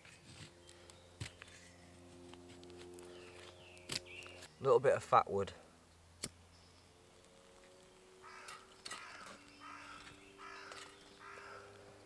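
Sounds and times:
crows cawing: 8.2 - 12.0.

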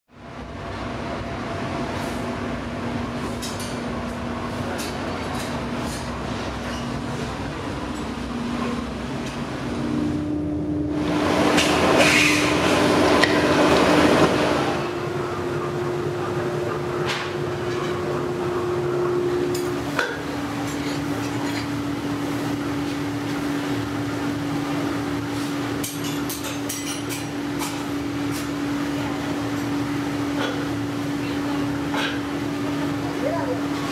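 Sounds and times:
fan-like machine hum: 0.1 - 33.9
furnace rushing noise: 10.9 - 33.9.

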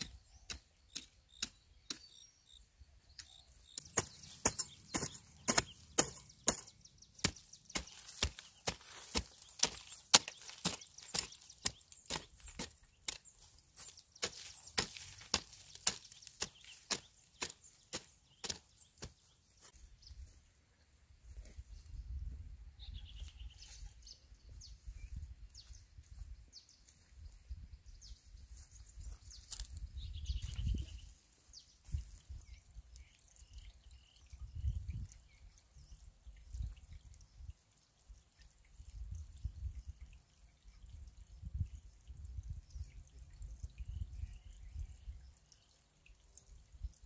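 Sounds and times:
hand tool chopping wood: 3.7 - 19.2.

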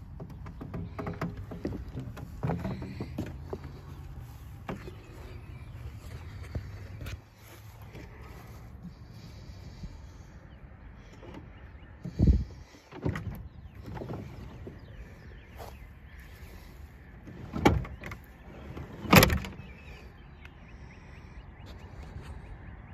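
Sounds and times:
metal door shutting: 19.0 - 19.6.

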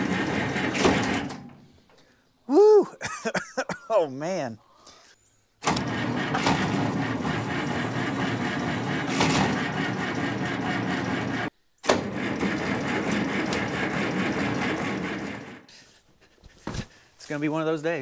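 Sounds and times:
starter cranking diesel engine: 0.0 - 1.5, 5.6 - 15.7.

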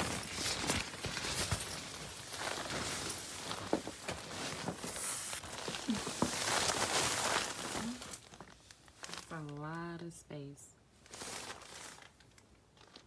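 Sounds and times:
fabric rustling and crinkling: 0.0 - 9.8, 10.9 - 13.0.

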